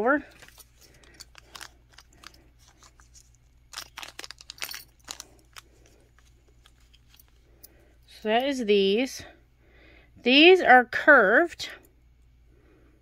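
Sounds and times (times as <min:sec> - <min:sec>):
plastic bags of beads crinkling: 0:00.2 - 0:07.5.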